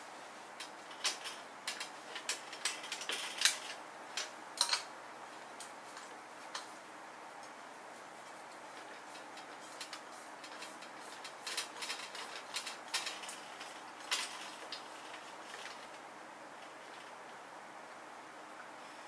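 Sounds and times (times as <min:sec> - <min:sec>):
faint steady hiss: 0:00.0 - 0:19.0
metal table parts clicking: 0:00.6 - 0:04.9, 0:09.4 - 0:16.0.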